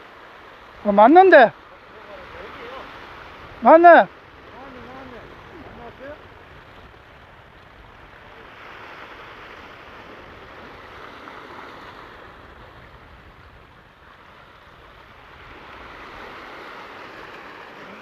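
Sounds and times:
ocean surf on rocky shore: 0.0 - 18.0.

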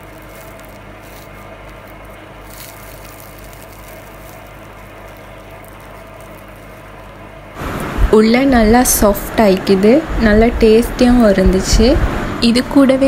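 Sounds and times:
low background hum with hiss: 0.0 - 13.0.

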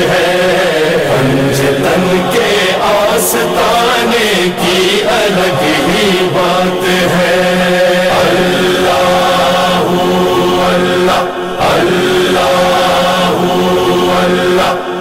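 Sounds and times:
man singing devotional song: 0.0 - 15.0
steady low drone: 4.4 - 15.0.

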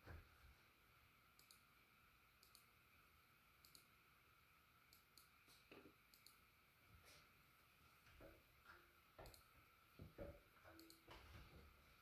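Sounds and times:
faint steady hum: 0.0 - 12.0
ceiling fan clicking: 1.3 - 2.8, 3.6 - 4.0, 4.8 - 6.5, 8.0 - 9.7, 10.4 - 11.6.

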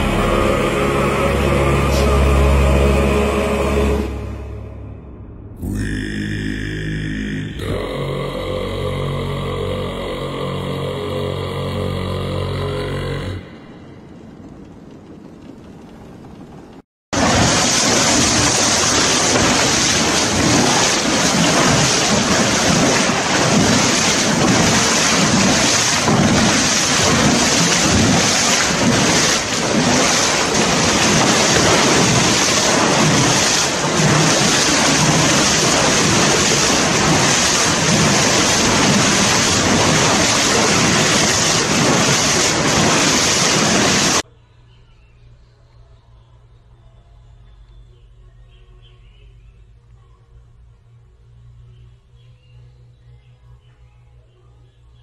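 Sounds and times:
water spraying on concrete: 17.2 - 44.2.

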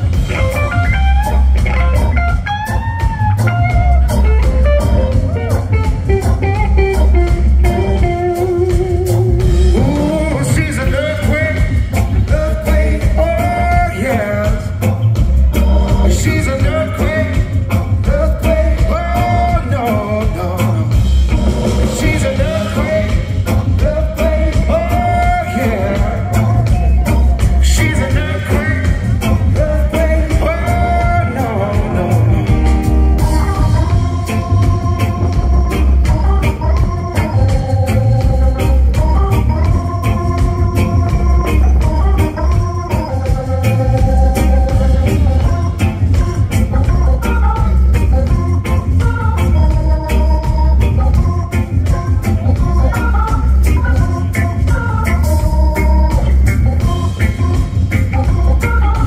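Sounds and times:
heavy bass line: 0.0 - 59.0
man singing lead: 0.0 - 59.0
organ chords: 0.0 - 59.0
reggae band playing: 0.0 - 59.0.

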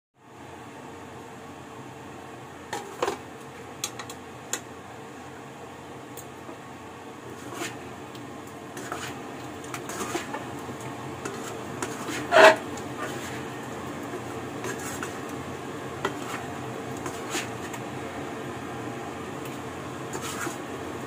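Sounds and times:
spatula scraping a pan: 7.3 - 7.8, 8.7 - 10.5, 11.2 - 15.4, 16.0 - 17.8, 20.1 - 20.7.

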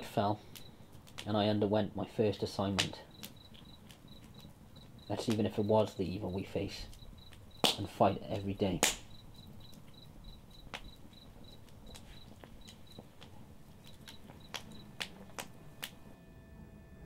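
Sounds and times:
faint held tones: 0.1 - 1.0, 3.0 - 17.0
sharp clicks: 0.5 - 1.3, 2.8 - 5.5, 6.9 - 16.0
cricket chirping: 3.0 - 15.3.

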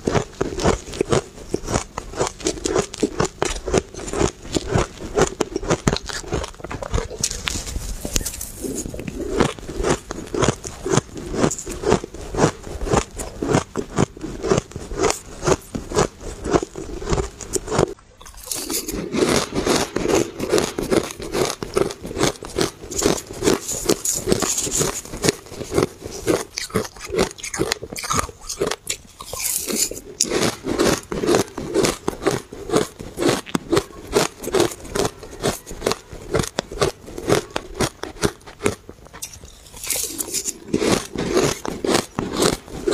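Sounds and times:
crunching shaved ice: 0.0 - 42.9
metal spoon scraping ice: 17.5 - 38.3, 39.2 - 42.9.

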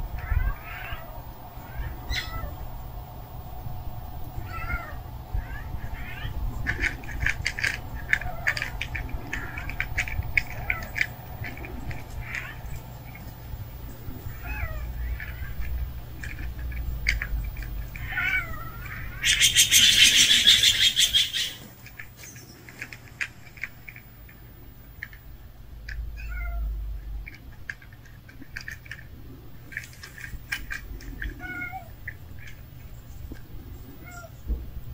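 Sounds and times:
cats meowing softly: 0.1 - 3.1, 4.3 - 21.7, 26.1 - 27.0, 30.2 - 32.6, 33.3 - 34.6.

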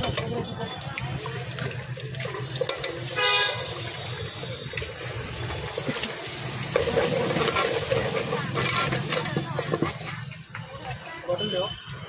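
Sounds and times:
eggs sizzling in oil: 0.0 - 12.0
vehicle horn: 3.1 - 4.7.

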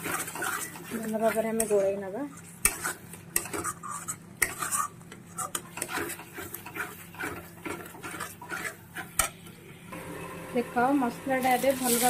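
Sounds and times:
metal spatula scraping pan: 0.0 - 9.4.

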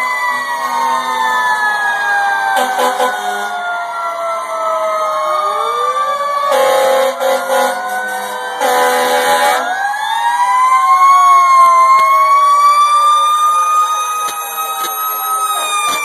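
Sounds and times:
fire engine sirens wailing: 0.0 - 16.0
air horn blasts: 2.6 - 3.5, 6.5 - 9.7.

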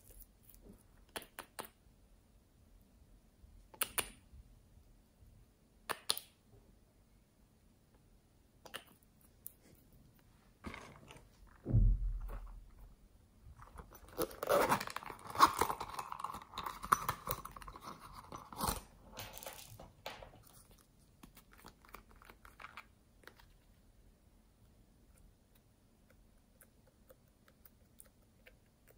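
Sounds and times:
dull thump: 11.6 - 12.5.

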